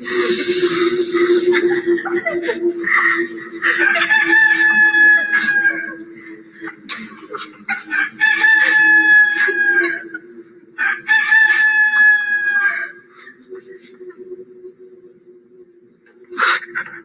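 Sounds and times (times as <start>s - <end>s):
steady low drone: 0.0s - 11.9s
rooster crowing: 3.6s - 6.1s, 7.7s - 10.2s, 10.8s - 13.1s.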